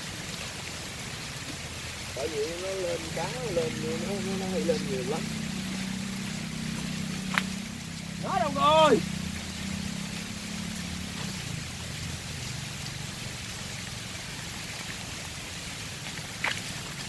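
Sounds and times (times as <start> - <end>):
rain and running water: 0.0 - 17.0
low engine hum: 1.4 - 15.0.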